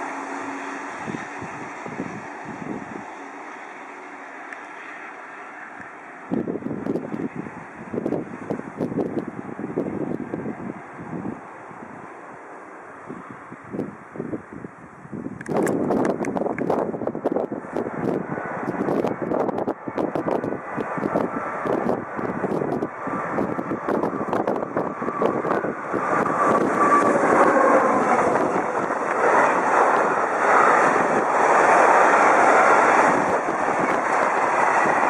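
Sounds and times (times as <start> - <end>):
freight train rumbling past: 0.0 - 14.6, 15.4 - 35.0
wind buffeting microphone: 0.1 - 3.2, 6.3 - 12.2, 12.9 - 35.0.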